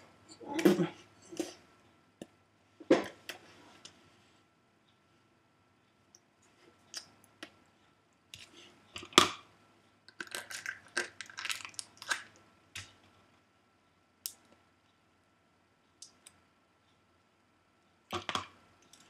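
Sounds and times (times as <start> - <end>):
crinkly packaging unwrapped by hand: 10.2 - 12.4.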